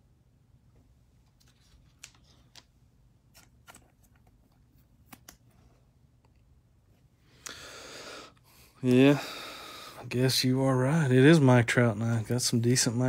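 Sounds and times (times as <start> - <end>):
trading card clicks: 5.0 - 5.5.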